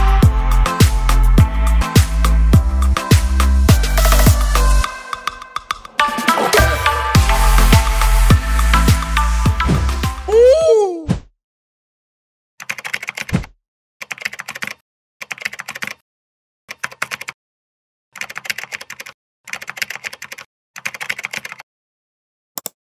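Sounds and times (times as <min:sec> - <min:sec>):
keyboard typing: 0:12.6 - 0:16.0, 0:16.7 - 0:17.4, 0:18.2 - 0:21.6.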